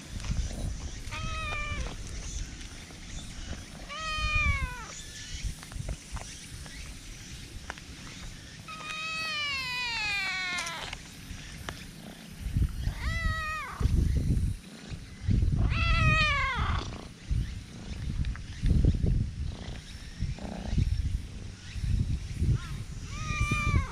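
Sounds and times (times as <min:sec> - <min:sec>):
cat meowing: 0:01.1 - 0:02.0, 0:03.9 - 0:05.0, 0:08.7 - 0:10.9, 0:12.9 - 0:13.9, 0:15.6 - 0:16.8, 0:23.1 - 0:23.9.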